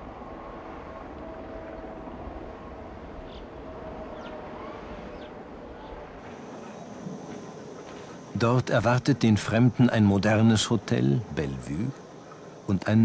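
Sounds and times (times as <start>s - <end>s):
railcar rumbling hum: 0.0s - 9.6s
faint steady whine: 0.0s - 13.0s.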